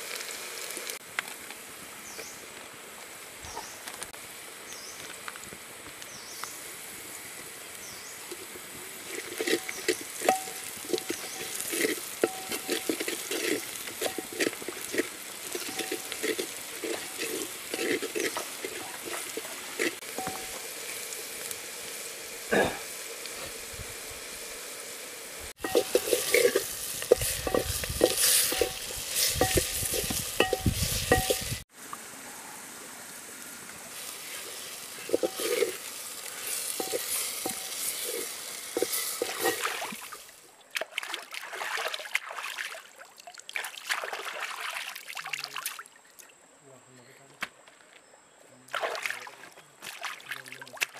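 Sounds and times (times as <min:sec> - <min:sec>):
food frying and sizzling: 0:00.0 - 0:40.4
wooden spatula scraping a pot: 0:09.0 - 0:20.6, 0:25.6 - 0:31.6, 0:34.4 - 0:39.7.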